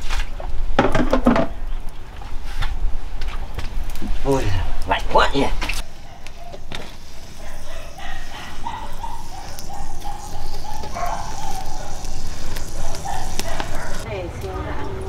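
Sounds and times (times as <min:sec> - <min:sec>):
animal making short high calls: 0:07.3 - 0:14.0.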